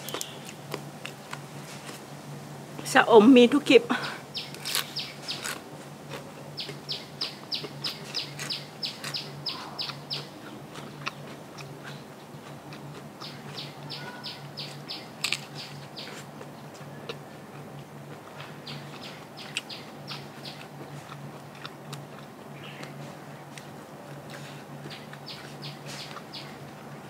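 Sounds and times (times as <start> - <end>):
faint steady hum: 0.0 - 27.0
bird chirping: 4.0 - 5.6, 6.6 - 12.5, 13.2 - 16.2, 18.6 - 20.7, 24.9 - 26.7.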